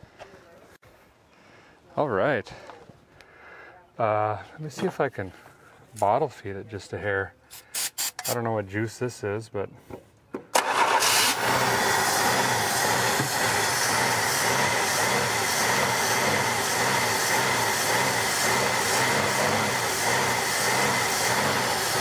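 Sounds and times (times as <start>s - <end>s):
car engine starting and running: 10.6s - 22.0s.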